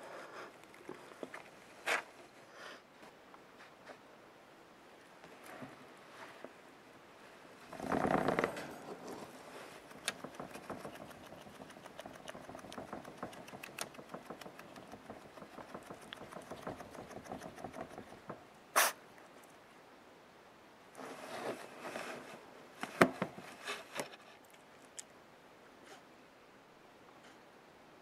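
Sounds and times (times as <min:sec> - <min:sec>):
small rapid clicks and scratches: 0:09.7 - 0:18.4.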